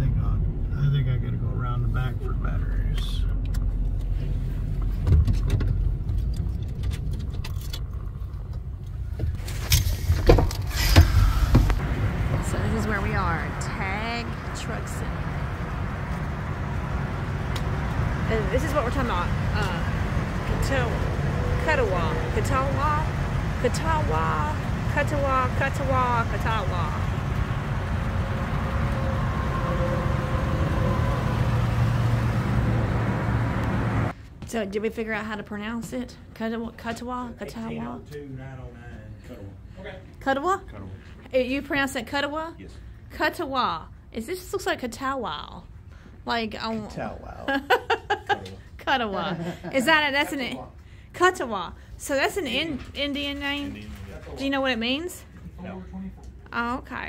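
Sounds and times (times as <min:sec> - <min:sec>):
engine and road noise in vehicle cab: 0:00.0 - 0:34.4.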